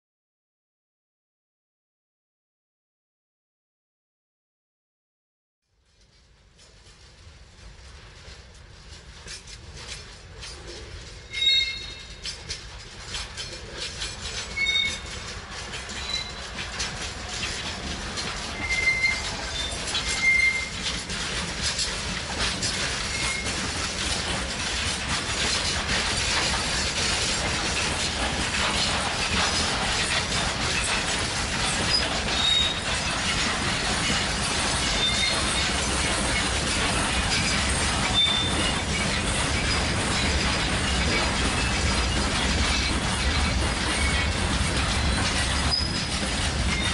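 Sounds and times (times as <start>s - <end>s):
wheels clicking over rail joints: 6.0s - 46.9s
freight wagons rolling: 6.7s - 46.9s
wheel flanges squealing: 10.4s - 46.9s.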